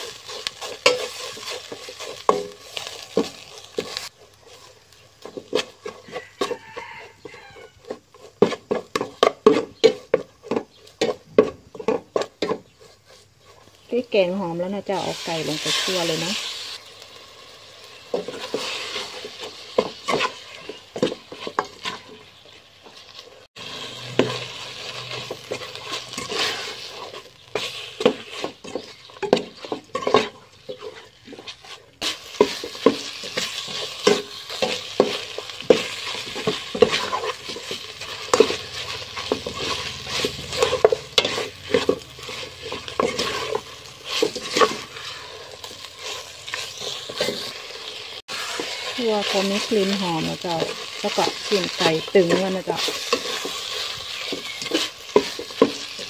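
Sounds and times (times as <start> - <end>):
frying sizzle: 0.0 - 56.0
metal ladle scraping a pot: 23.6 - 56.0.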